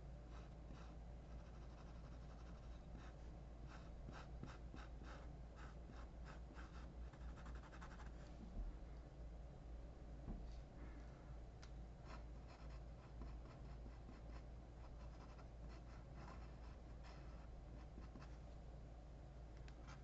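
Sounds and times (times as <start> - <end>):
low steady hum: 0.0 - 20.0
marker pen scratching on paper: 0.3 - 8.2, 12.1 - 18.4.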